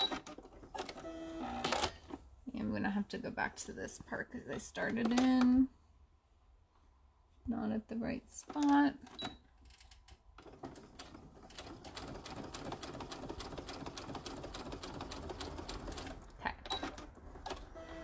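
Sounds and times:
sewing machine stitching: 0.0s - 2.1s, 10.4s - 18.0s.

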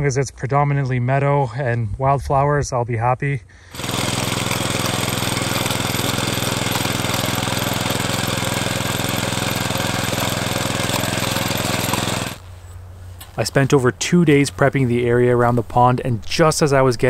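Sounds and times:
rototiller engine running: 3.7s - 12.4s.

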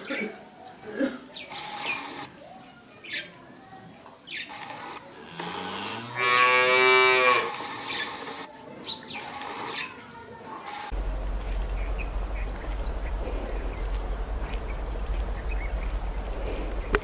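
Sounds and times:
cow mooing: 5.2s - 8.1s
bird chirps: 11.4s - 17.0s.

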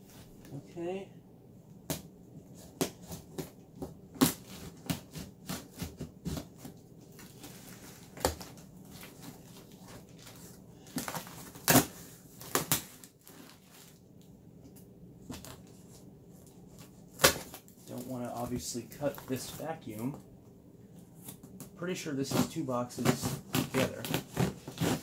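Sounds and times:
knife cutting cardboard box: 2.5s - 10.1s, 22.2s - 25.0s.

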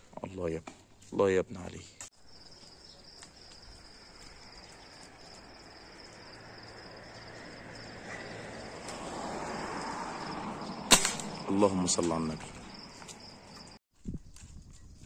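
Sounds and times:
faint outdoor background noise: 0.0s - 15.0s
crickets trilling: 2.2s - 13.8s.

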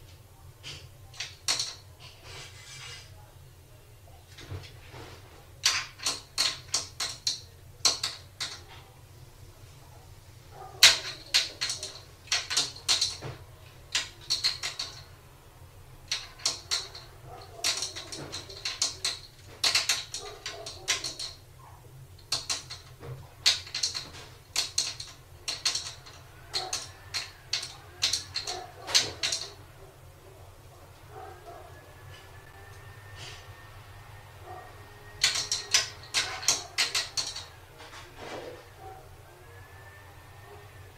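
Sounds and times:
cupboard doors rattling and knocking: 4.4s - 8.8s, 10.6s - 15.2s, 16.0s - 21.5s, 22.2s - 29.7s, 35.2s - 38.1s.

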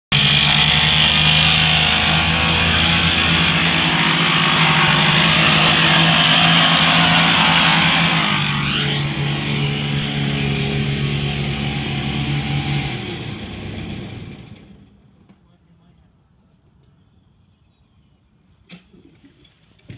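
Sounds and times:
harsh high-pitched noise: 0.1s - 13.2s
riding lawn mower engine drone: 0.1s - 15.4s.

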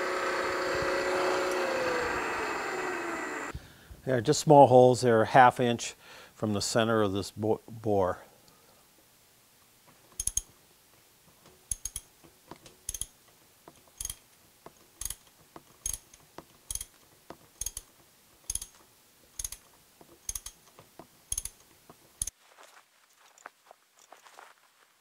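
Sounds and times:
sharp metallic clicks: 10.2s - 10.5s, 11.6s - 14.2s, 15.0s - 18.8s, 19.4s - 22.3s.

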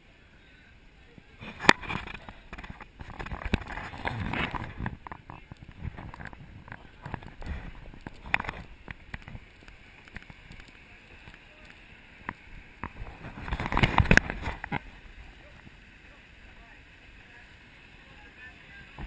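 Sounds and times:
open-air ambience hiss: 0.0s - 19.0s
camera jostling: 12.8s - 14.8s.

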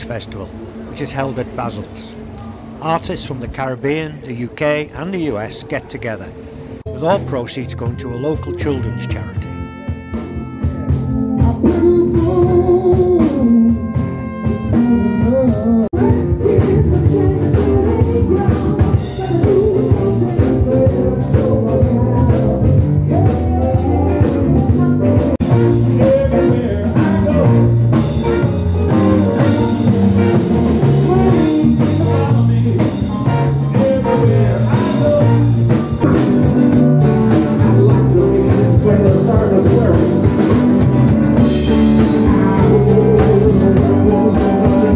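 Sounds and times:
trumpet playing held notes: 7.0s - 16.2s, 23.6s - 44.9s
live blues band: 7.2s - 44.9s.

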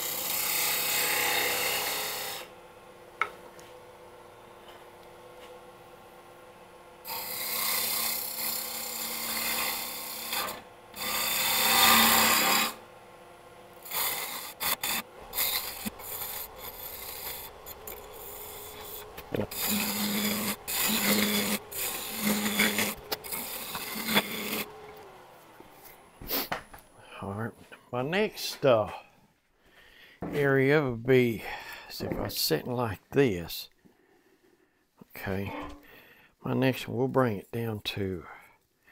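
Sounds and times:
gouge cutting wood on lathe: 0.0s - 2.6s, 7.0s - 26.4s.

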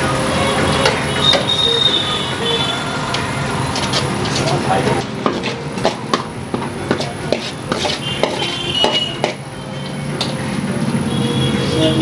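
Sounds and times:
metal spatula scraping metal pan: 7.3s - 9.4s.

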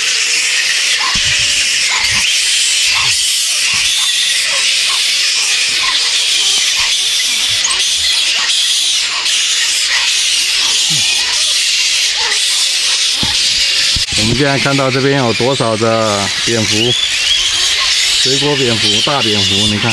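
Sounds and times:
fruit bats squealing and screeching: 0.0s - 19.9s.

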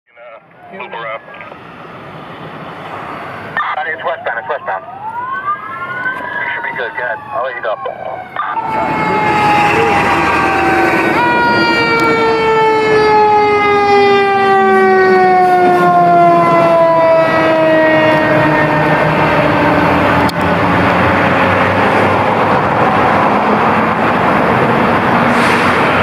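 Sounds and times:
fire engine passing: 0.2s - 26.0s
mechanical siren winding down: 4.8s - 21.4s.

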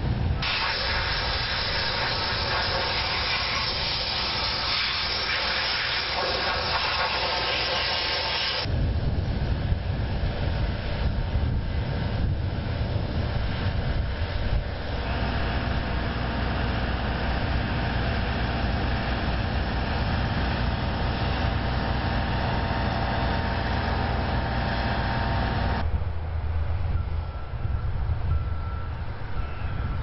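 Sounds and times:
faint steady whine: 0.0s - 30.0s
heavy machinery engine rumbling: 0.0s - 30.0s.

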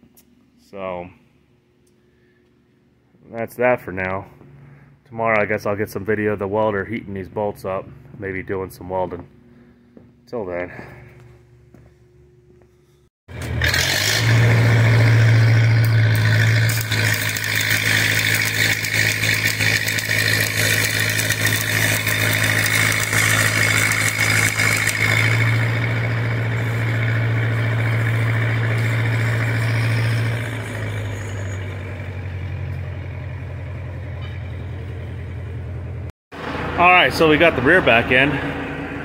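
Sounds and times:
welding machine drone: 13.3s - 39.0s
welding arc crackling: 13.4s - 32.3s.

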